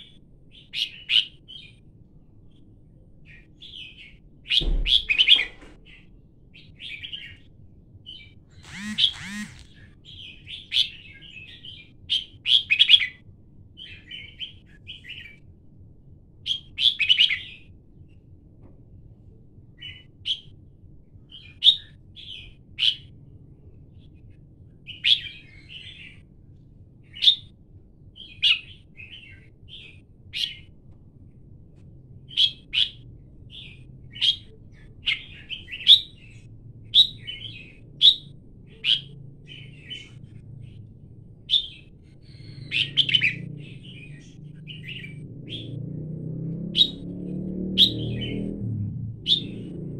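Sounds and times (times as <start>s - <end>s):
bird chirping: 8.6s - 9.7s, 49.3s - 49.7s.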